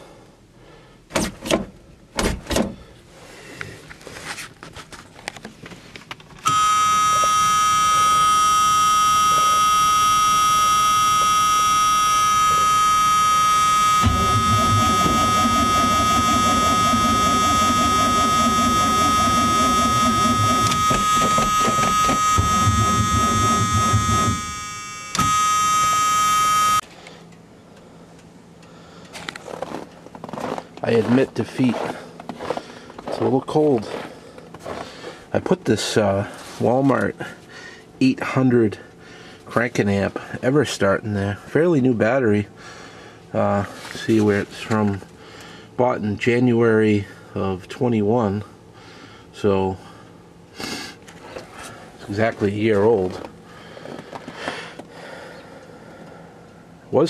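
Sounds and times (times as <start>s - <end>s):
high-pitched warning buzzer: 6.4s - 26.8s
engine starter cranking: 14.0s - 24.5s.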